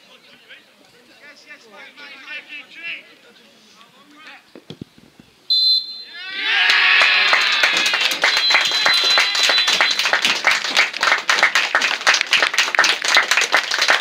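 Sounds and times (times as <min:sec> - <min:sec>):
referee's whistle blast: 0:05.5 - 0:06.2, 0:08.2 - 0:10.1
spectators applauding: 0:06.6 - 0:14.0.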